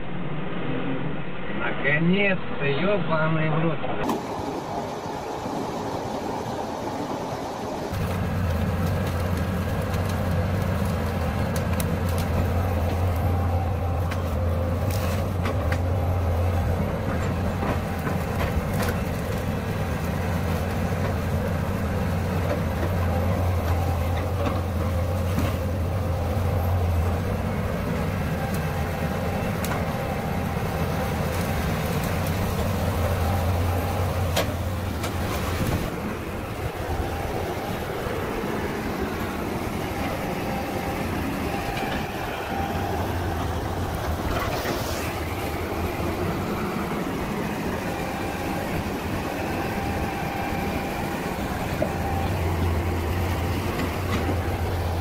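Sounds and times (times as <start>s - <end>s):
diesel engine humming: 4.0s - 55.0s.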